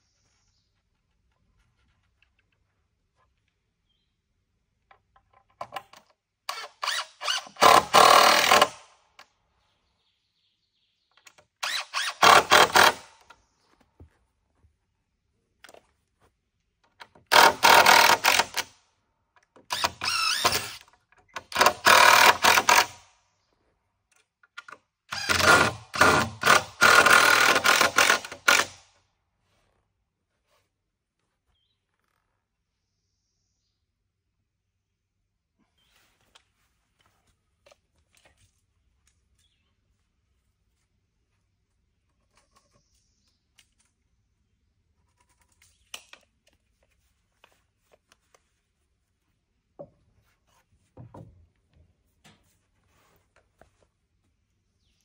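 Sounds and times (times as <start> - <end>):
cordless drill driving screws: 6.5 - 8.9, 11.6 - 13.3, 17.3 - 18.7, 19.6 - 23.0, 25.1 - 28.8.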